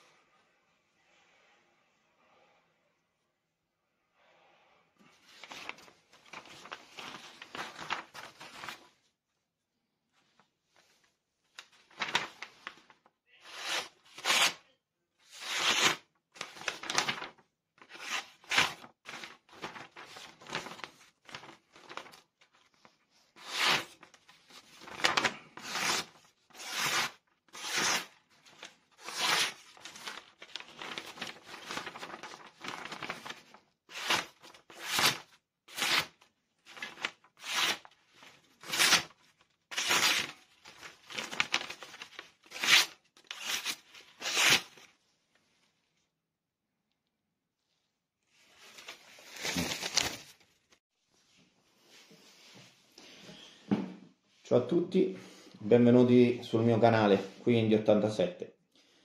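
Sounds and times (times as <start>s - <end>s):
knife slicing paper: 13.5s - 14.6s, 17.9s - 19.3s, 23.4s - 38.0s, 38.6s - 44.9s.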